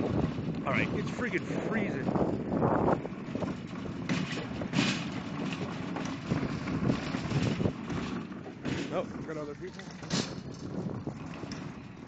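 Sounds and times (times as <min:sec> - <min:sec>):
shopping cart rolling and rattling: 0:03.1 - 0:12.0.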